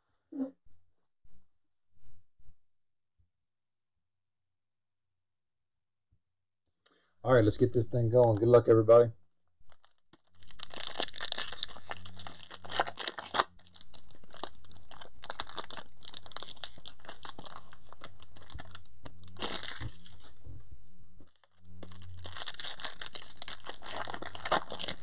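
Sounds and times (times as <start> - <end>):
foil wrappers crinkling: 9.7 - 20.4, 21.2 - 25.0
steady low hum: 11.4 - 25.0.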